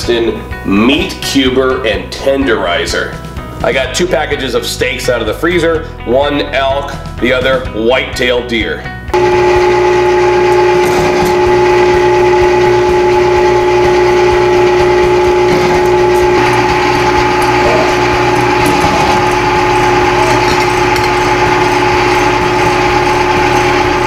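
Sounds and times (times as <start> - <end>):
electric meat grinder motor hum: 9.2 - 24.0.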